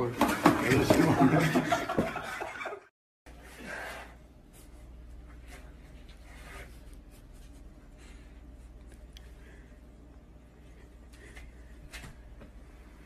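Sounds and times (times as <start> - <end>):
low steady hum: 3.3 - 13.0.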